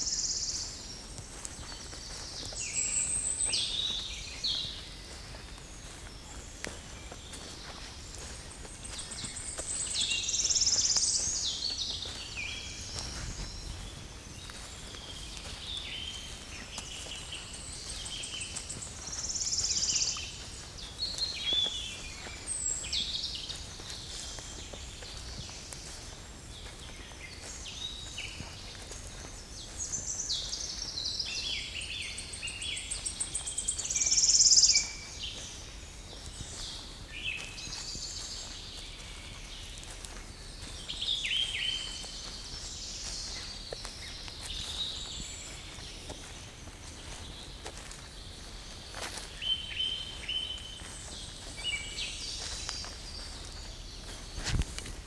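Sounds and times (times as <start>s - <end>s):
songbirds singing: 0.0s - 55.0s.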